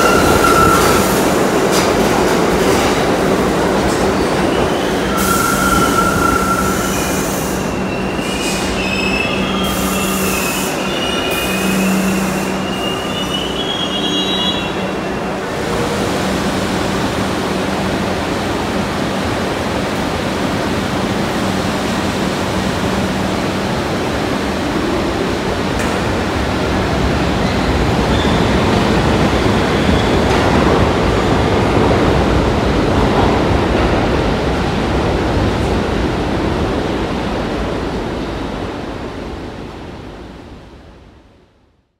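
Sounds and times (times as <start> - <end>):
train wheels squealing: 0.0 - 1.2, 4.4 - 15.4, 27.4 - 28.6
rumble of wheels on rail: 0.0 - 41.6.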